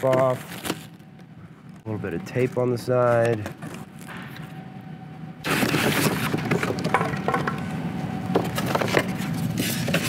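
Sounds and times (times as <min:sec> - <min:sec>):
plastic wrap and cardboard crinkling: 0:00.0 - 0:01.0.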